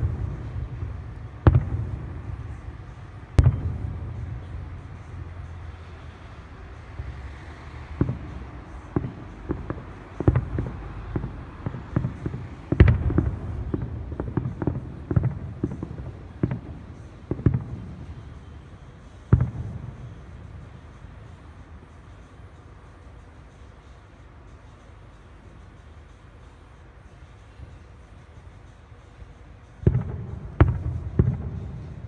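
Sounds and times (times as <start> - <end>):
fireworks bangs and crackles: 0.0 - 22.2, 29.7 - 32.0.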